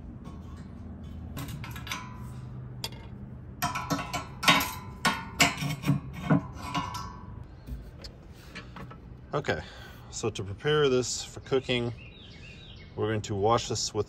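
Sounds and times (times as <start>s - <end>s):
metal tool clinking on grill grate: 0.2s - 7.4s.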